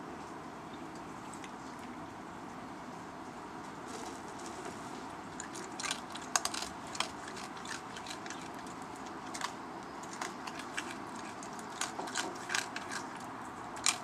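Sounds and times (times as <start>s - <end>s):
raccoon crunching dry food: 3.8s - 14.0s.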